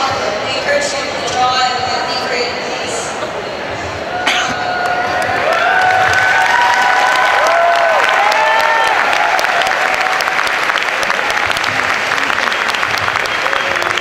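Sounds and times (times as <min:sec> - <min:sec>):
people whooping: 0:04.6 - 0:14.0
audience applauding: 0:04.7 - 0:14.0.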